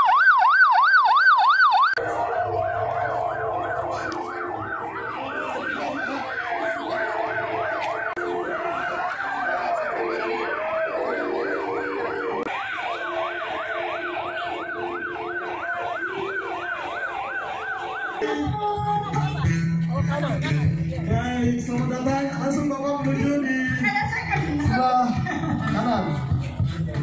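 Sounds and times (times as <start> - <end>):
electronic siren yelping: 0.0 - 19.1.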